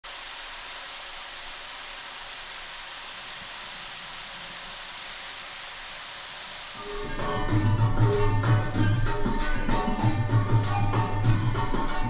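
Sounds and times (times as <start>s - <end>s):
chips sizzling in hot oil: 0.0s - 7.4s.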